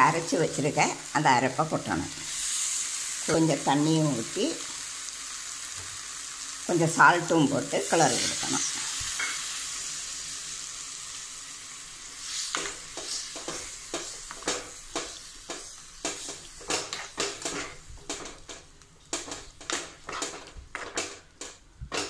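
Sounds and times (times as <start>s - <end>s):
sizzling: 0.0s - 22.0s
metal spoon scraping in a pan: 7.9s - 9.5s, 12.2s - 18.6s, 19.2s - 22.0s.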